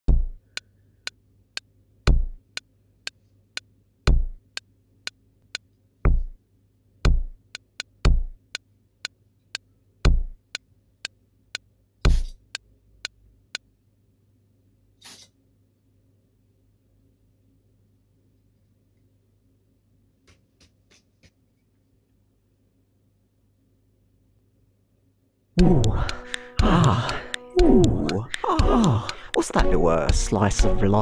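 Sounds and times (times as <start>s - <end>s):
deep kick drum: 0.1s - 0.4s, 2.1s - 2.4s, 4.1s - 4.4s, 6.1s - 6.4s, 7.0s - 7.4s, 8.0s - 8.4s, 10.0s - 10.4s, 25.6s - 30.8s
short sharp ticks: 25.8s - 30.8s.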